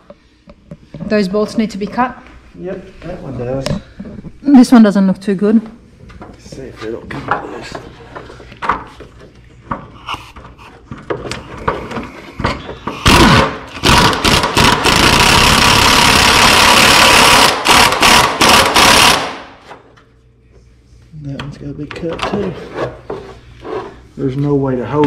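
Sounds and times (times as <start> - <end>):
power wrench running: 12.9 - 19.6.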